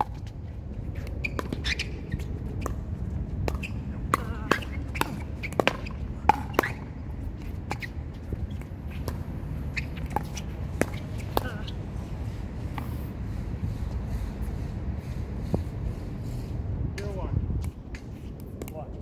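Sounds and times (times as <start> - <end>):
shoe squeaks on court: 1.0 - 2.8, 3.5 - 3.9, 4.6 - 6.8, 7.7 - 11.8.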